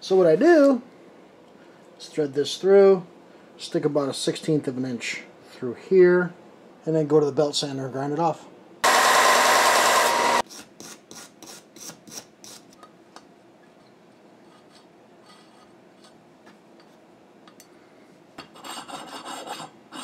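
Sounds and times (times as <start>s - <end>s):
belt sander grinding steel: 8.8s - 10.4s.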